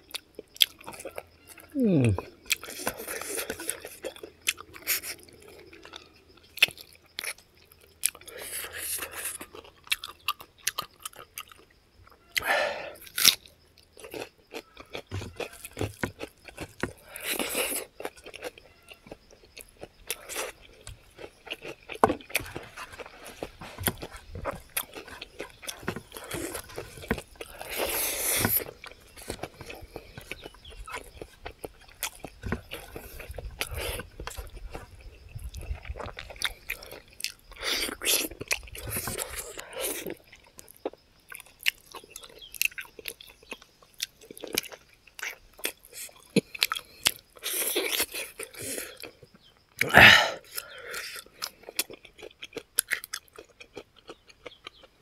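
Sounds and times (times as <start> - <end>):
person chewing and biting: 0.0 - 55.0.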